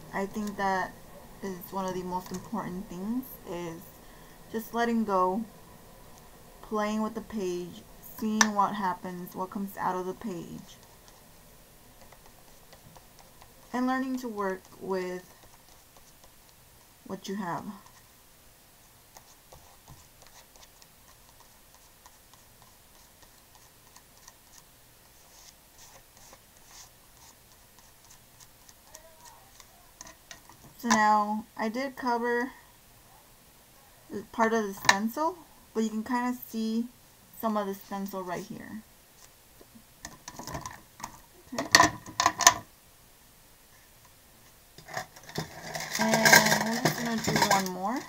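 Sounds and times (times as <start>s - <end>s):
fingers smearing paint on paper: 12.0s - 17.0s, 18.8s - 30.2s
paint tubes clicking and clacking: 44.8s - 48.0s.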